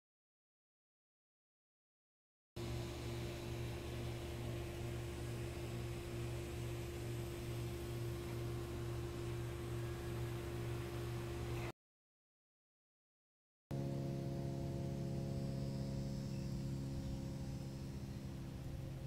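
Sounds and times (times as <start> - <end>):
constant high tone: 2.6 - 11.7, 13.8 - 19.0
steady hum: 2.6 - 11.7, 13.7 - 19.0.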